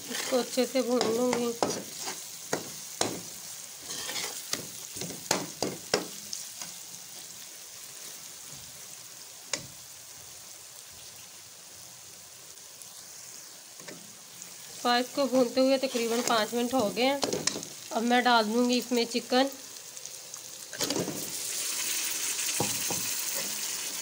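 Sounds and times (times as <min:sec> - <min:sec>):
metal spoon scraping a pan: 0:00.0 - 0:06.2, 0:15.4 - 0:17.7, 0:23.3 - 0:23.6
food sizzling in hot oil: 0:00.0 - 0:24.0.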